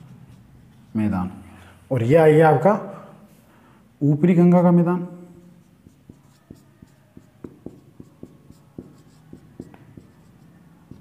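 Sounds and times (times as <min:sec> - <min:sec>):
marker writing on whiteboard: 0:00.0 - 0:01.0, 0:05.3 - 0:11.0.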